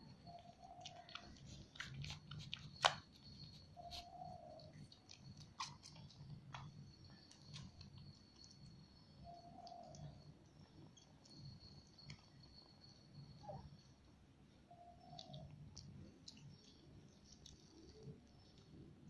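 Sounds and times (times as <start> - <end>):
kittens suckling clicks: 0.5 - 8.6.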